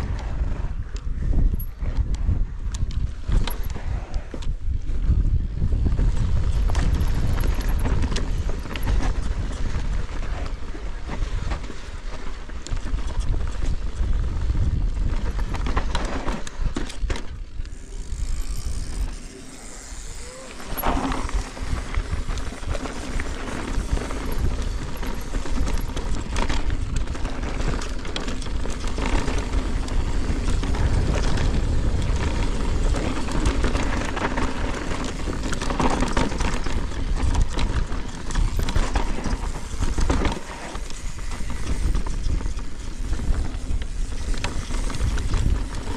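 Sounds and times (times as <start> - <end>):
wind rumbling on microphone: 0.0 - 45.9
bike chain and frame rattling: 5.6 - 45.9.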